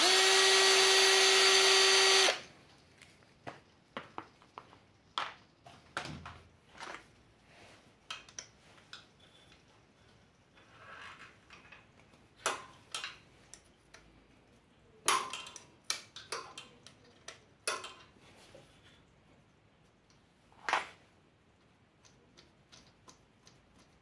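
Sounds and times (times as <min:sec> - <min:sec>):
soft metal scrape: 0:09.2 - 0:11.4.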